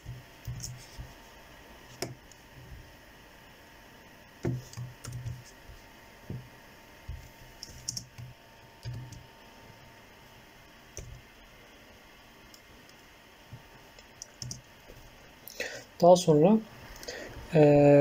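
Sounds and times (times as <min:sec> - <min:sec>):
laptop keyboard typing: 0:04.4 - 0:05.6, 0:07.1 - 0:09.2, 0:14.2 - 0:14.7.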